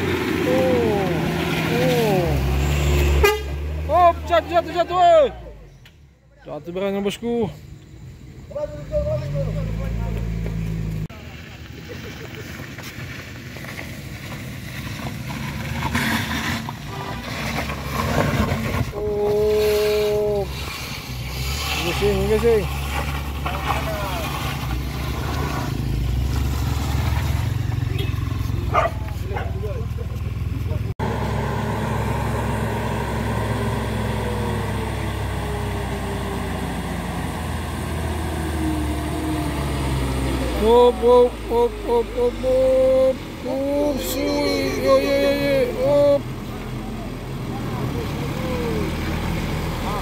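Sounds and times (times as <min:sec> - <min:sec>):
vehicle engine rumbling: 0:00.0 - 0:50.0
vehicle horn: 0:03.0 - 0:03.7, 0:16.8 - 0:17.4, 0:27.9 - 0:28.4.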